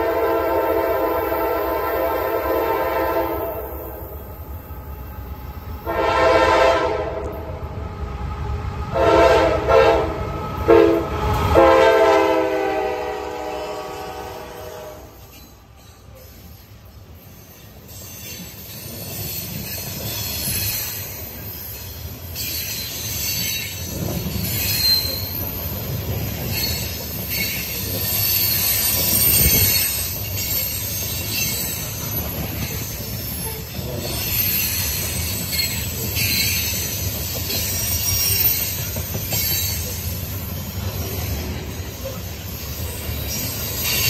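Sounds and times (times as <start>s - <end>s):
train wheels rumbling on track: 0.0s - 44.0s
high-pitched wheel squeal: 24.4s - 25.8s, 26.5s - 40.1s.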